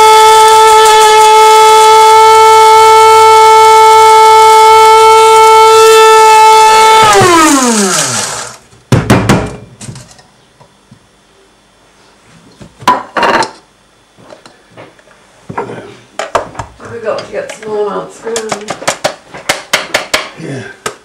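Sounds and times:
electric coffee grinder whining: 0.0 - 8.6
motor winding down: 0.0 - 8.6.

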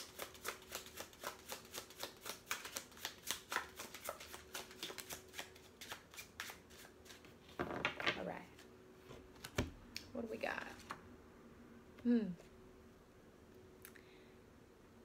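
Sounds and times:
cards being shuffled: 0.0 - 8.7.

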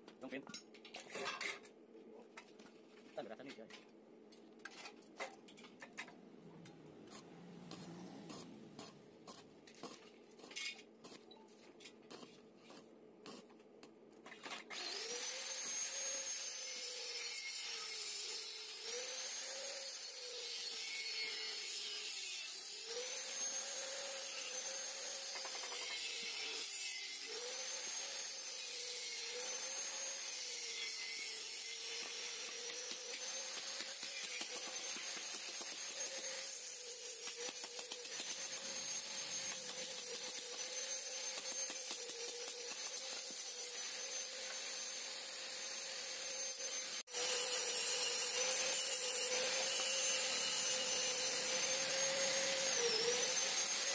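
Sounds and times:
arc welding crackling and hissing: 7.1 - 11.3, 12.1 - 13.6, 31.3 - 47.0.

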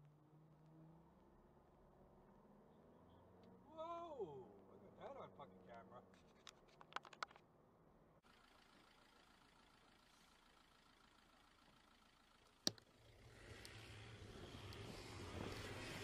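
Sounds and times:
faint vehicle noise: 0.0 - 16.0
low hum: 8.1 - 16.0.

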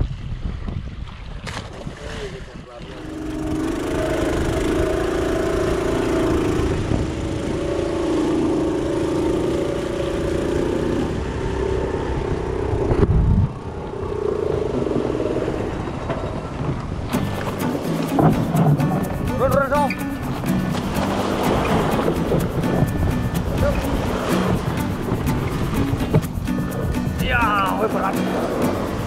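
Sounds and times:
wind: 0.0 - 29.0
small boat engine running: 2.8 - 29.0
rushing water: 15.5 - 29.0.

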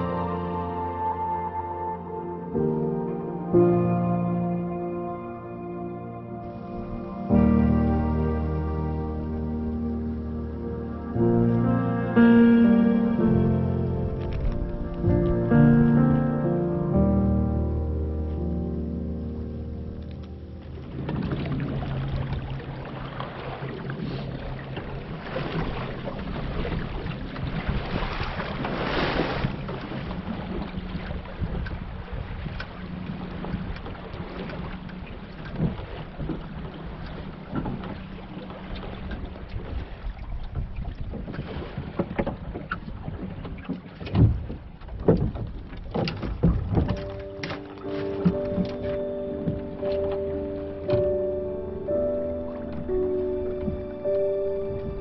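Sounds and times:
music: 0.0 - 21.3, 45.1 - 55.0
water rushing along a hull: 0.0 - 55.0
wind buffeting microphone: 20.8 - 47.4
hollow knocks from boat: 20.8 - 51.5, 52.5 - 55.0.

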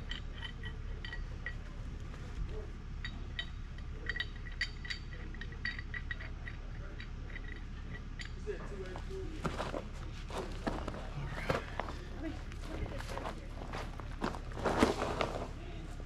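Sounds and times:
light metallic clinks: 0.0 - 9.4
low steady rumble: 0.0 - 16.0.

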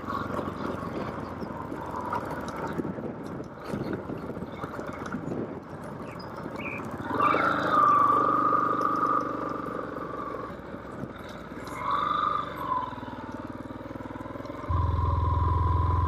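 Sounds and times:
motorcycle engine running: 5.7 - 16.0
high steady whine: 14.7 - 16.0.

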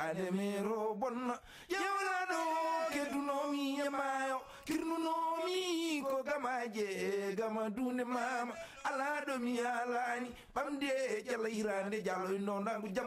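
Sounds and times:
person singing with vibrato: 0.0 - 13.0.

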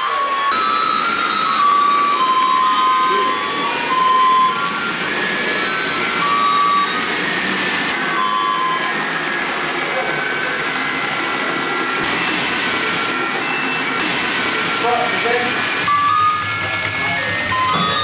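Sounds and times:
motorised toy dogs whirring: 0.0 - 18.0
hubbub of people talking: 1.6 - 5.0, 8.2 - 12.1.

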